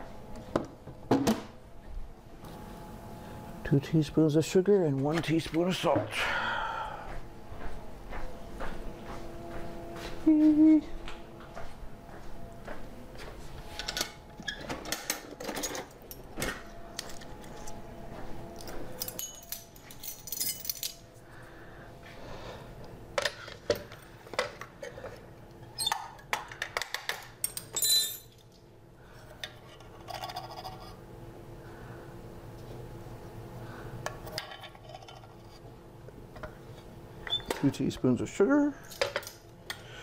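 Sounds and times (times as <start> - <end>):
metallic ring: 18.5 - 21.1, 27.4 - 28.4
measuring spoons jangling: 19.0 - 21.0, 27.4 - 28.4.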